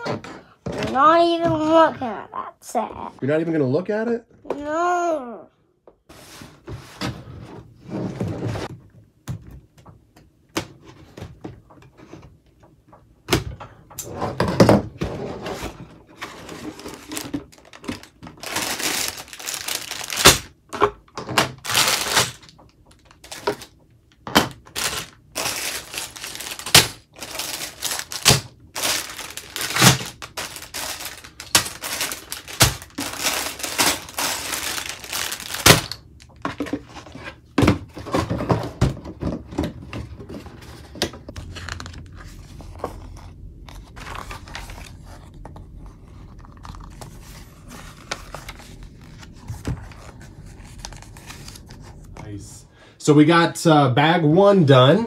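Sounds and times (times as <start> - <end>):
rustling and crinkling: 14.1 - 20.6, 21.4 - 52.5.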